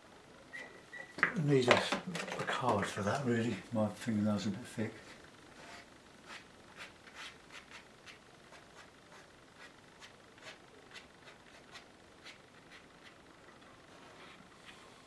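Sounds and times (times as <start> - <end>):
fingernail scraping paper: 5.6 - 13.2.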